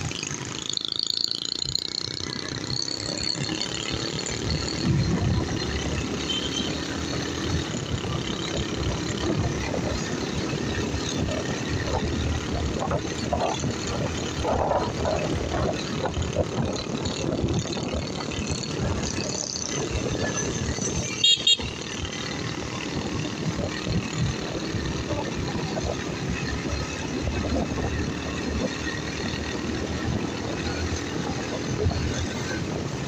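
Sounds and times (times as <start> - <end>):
motorcycle engine running: 0.0 - 33.0
wind and road noise: 0.0 - 33.0
horn beeps: 21.2 - 21.7.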